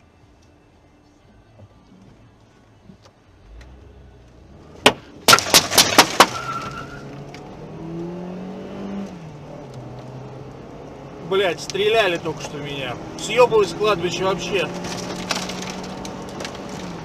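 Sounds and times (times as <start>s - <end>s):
car engine revving: 5.8s - 17.0s.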